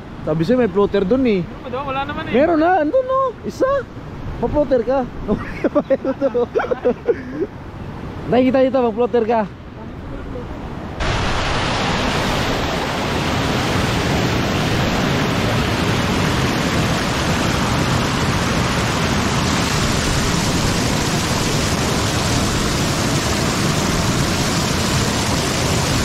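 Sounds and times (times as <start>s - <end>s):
water rushing over weir: 10.6s - 26.0s.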